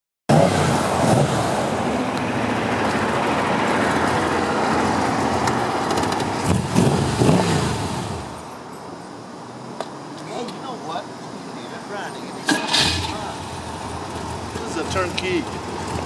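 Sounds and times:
car engine idling and revving: 0:00.3 - 0:08.7, 0:12.4 - 0:16.0.

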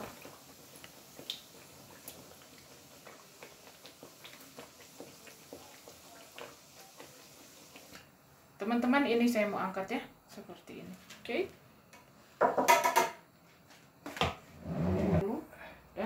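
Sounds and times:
batter sizzling in hot oil: 0:00.0 - 0:08.1.

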